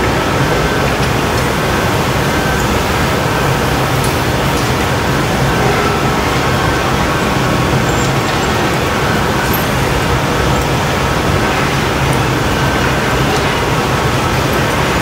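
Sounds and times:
furnace and burners roaring: 0.0s - 15.0s
ventilation fans: 0.0s - 15.0s.

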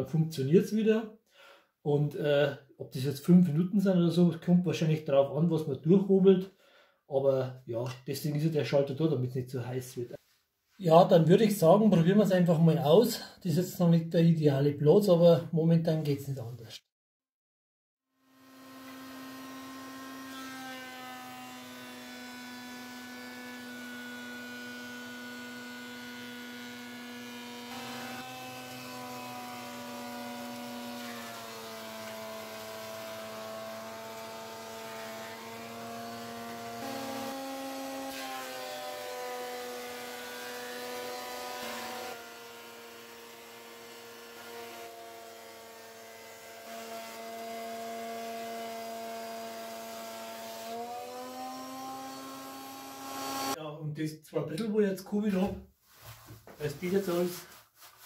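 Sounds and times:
boards being planed: 18.6s - 53.6s.

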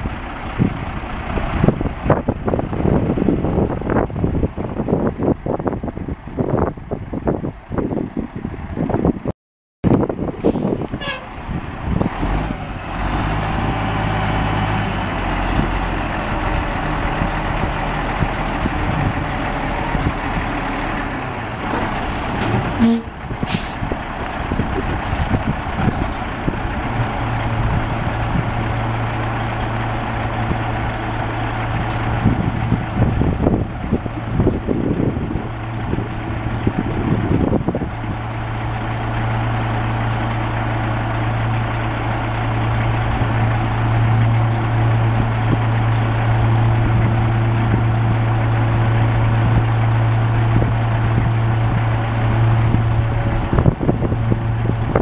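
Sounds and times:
diesel truck engine running: 0.0s - 9.3s, 9.9s - 55.0s
air hiss: 22.8s - 23.9s.

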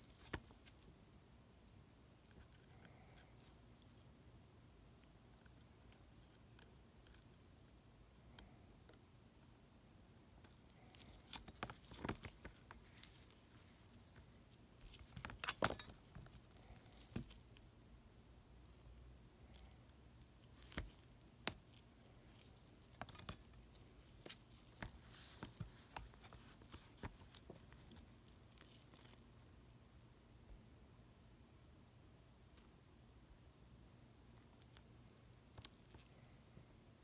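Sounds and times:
metal tweezers clicking and scraping: 10.4s - 14.2s, 14.8s - 17.6s, 19.5s - 29.3s.

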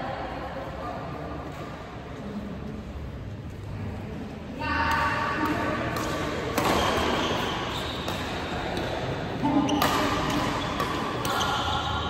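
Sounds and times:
rackets striking shuttlecock: 4.9s - 12.0s.

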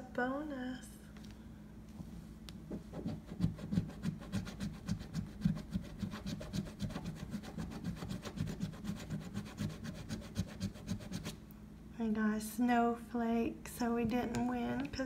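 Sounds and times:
scratching lottery ticket: 3.0s - 11.4s.

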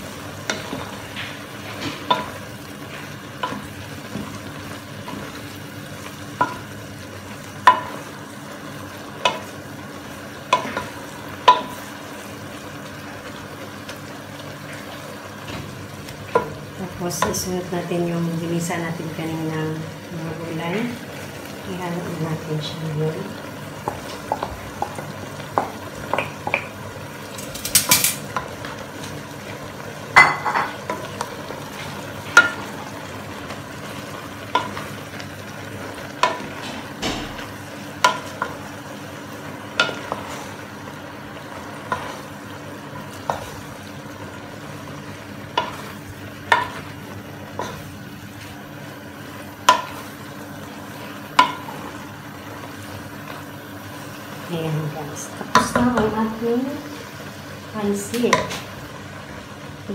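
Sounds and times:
frying sizzle: 0.0s - 59.9s
spatula stirring noodles: 37.7s - 54.0s.

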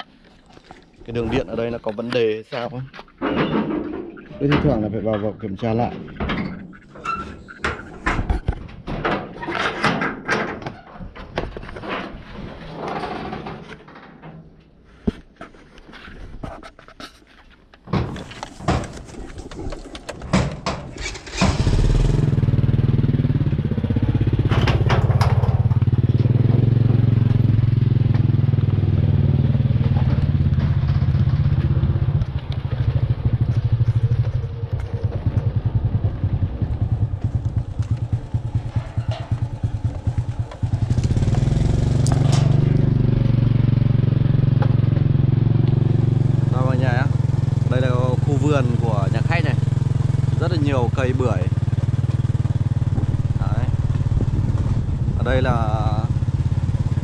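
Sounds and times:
motorcycle knocks and clatter: 7.5s - 14.6s, 17.8s - 57.0s
motorcycle engine running: 20.9s - 57.0s.

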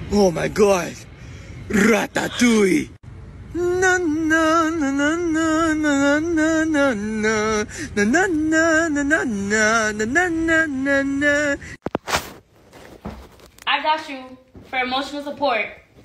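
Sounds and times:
person singing with vibrato: 3.4s - 11.8s.

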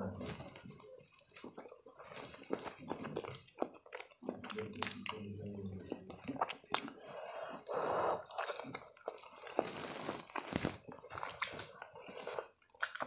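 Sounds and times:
slurping noodles: 6.5s - 12.6s
wet chewing and lip smacks: 11.0s - 13.0s.

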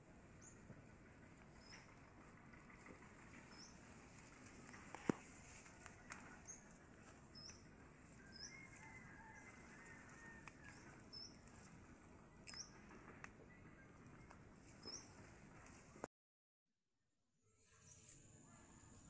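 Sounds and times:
bird chirp: 1.5s - 9.9s, 10.6s - 15.9s.

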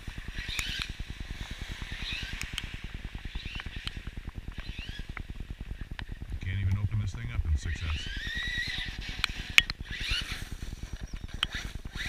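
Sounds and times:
fast low fluttering: 0.0s - 12.0s
sharp clicks: 0.4s - 1.0s, 2.2s - 8.4s
birds chirping: 9.8s - 12.0s.

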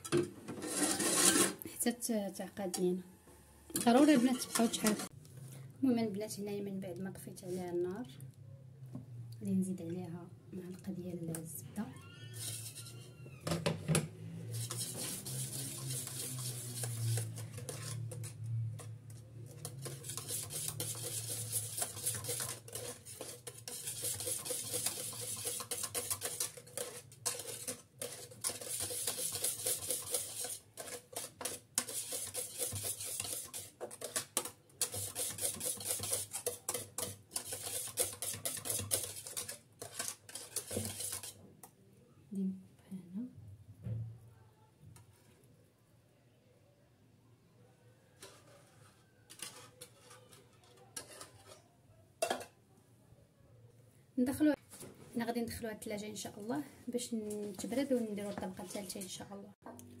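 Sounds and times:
whisk scraping a metal saucepan: 0.5s - 1.6s, 3.7s - 5.1s, 12.1s - 13.2s, 14.4s - 41.4s, 48.1s - 52.5s, 57.4s - 59.4s.

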